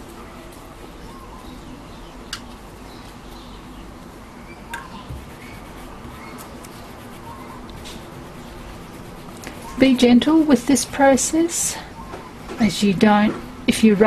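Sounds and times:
steady low hum: 0.0s - 14.0s
brush rubbing on wet paper: 4.8s - 11.8s.

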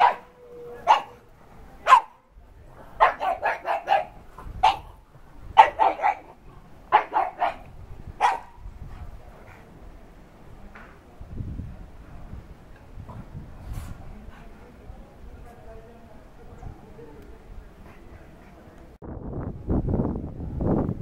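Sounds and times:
dog barking: 0.0s - 1.2s, 1.8s - 2.2s, 3.0s - 5.0s, 5.6s - 8.6s.

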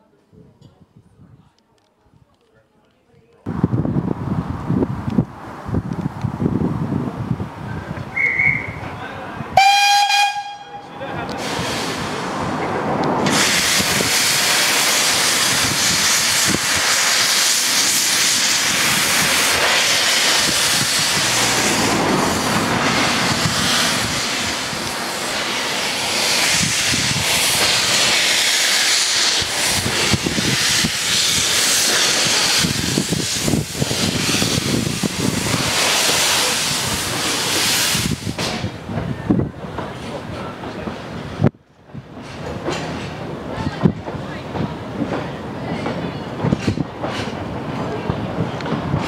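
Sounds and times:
steam hissing: 11.1s - 39.0s
train wheels knocking and clicking: 37.0s - 49.0s.

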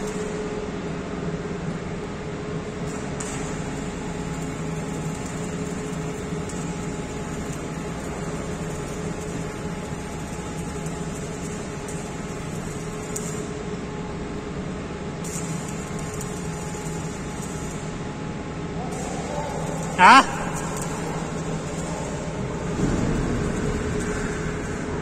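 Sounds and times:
machinery low hum: 0.6s - 25.0s
arc welding hiss: 2.9s - 14.0s, 15.2s - 18.0s.

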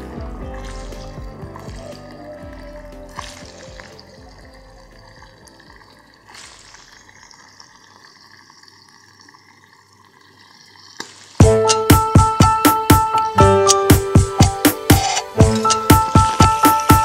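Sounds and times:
electronic music with a beat: 0.0s - 5.6s, 11.4s - 17.0s.

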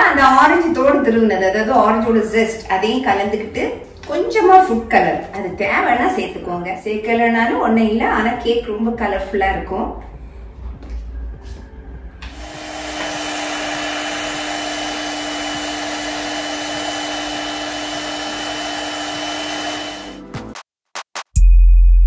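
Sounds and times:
electric hand mixer running: 12.2s - 20.3s.

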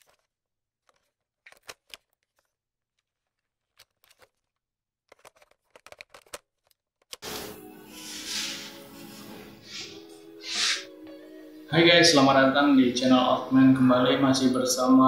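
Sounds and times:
crisp clicks and rustles: 0.0s - 7.2s
intro music: 7.2s - 14.2s.

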